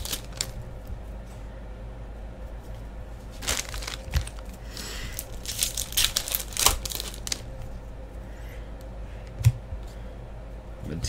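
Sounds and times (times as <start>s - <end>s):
foil wrapper crinkling and tearing: 0.0s - 0.6s, 3.3s - 7.5s.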